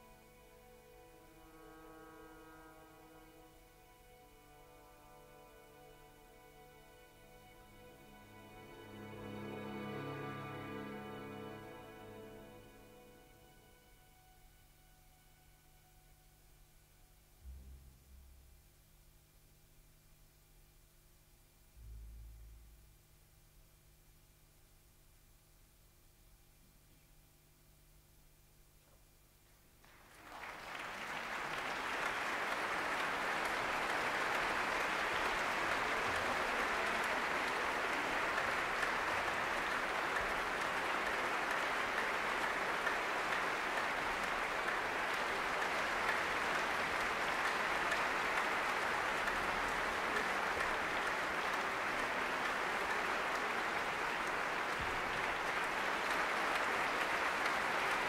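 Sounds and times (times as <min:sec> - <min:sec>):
audience applauding: 0:07.9 - 0:13.4, 0:29.8 - 0:58.0.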